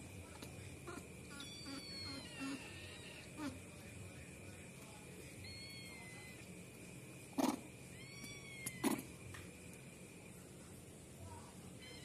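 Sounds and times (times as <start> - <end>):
kitten mewing: 0.8 - 3.6, 7.3 - 9.2.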